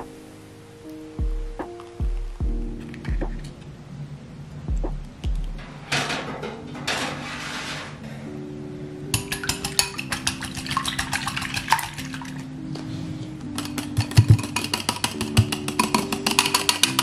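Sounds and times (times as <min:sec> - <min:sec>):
soft background music: 0:00.0 - 0:17.0
whisk clicking against bowl: 0:09.2 - 0:12.2, 0:13.6 - 0:17.0.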